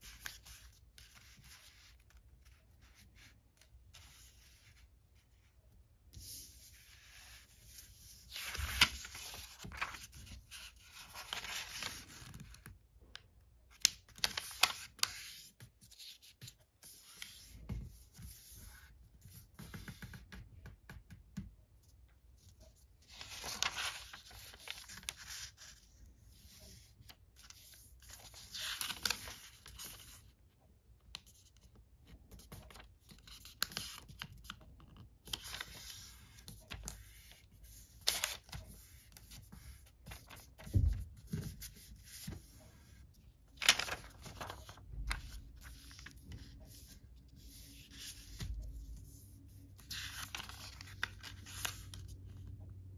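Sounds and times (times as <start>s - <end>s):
paper rustling and crinkling: 6.1s - 12.8s, 13.7s - 20.3s, 22.6s - 30.3s, 32.3s - 52.2s.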